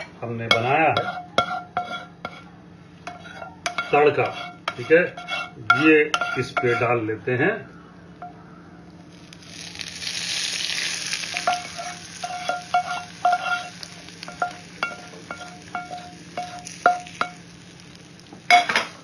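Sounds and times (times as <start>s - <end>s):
hot oil sizzling: 3.0s - 6.8s, 8.9s - 19.0s
crackling pops: 8.9s - 13.2s.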